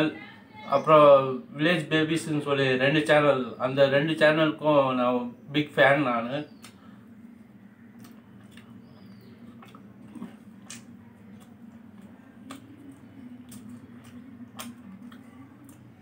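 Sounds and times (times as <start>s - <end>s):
low steady hum: 0.0s - 16.0s
wet squishing: 7.6s - 16.0s
fingers pulling apart fried chicken: 7.7s - 16.0s.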